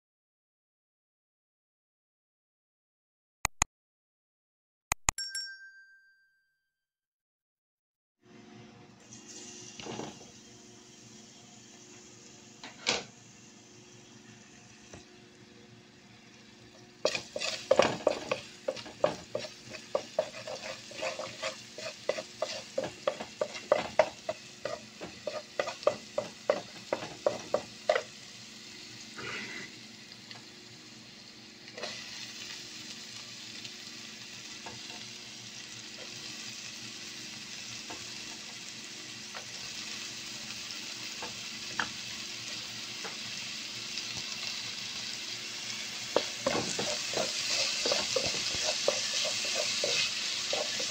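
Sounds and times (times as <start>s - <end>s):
food frying in pan: 9.0s - 50.9s
wooden spatula scraping pan: 17.0s - 28.1s, 46.1s - 50.9s.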